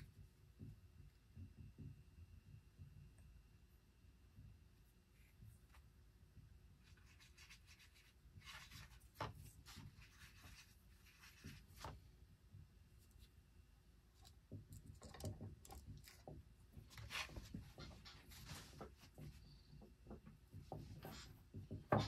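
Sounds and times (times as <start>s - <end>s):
paintbrush tapping and rubbing: 4.3s - 12.1s, 14.1s - 22.0s.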